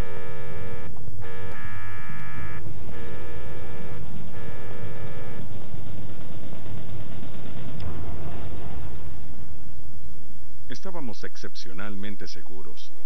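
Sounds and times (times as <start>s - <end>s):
electronic alarm buzzer: 0.0s - 5.9s
steady low rumble: 0.0s - 13.0s.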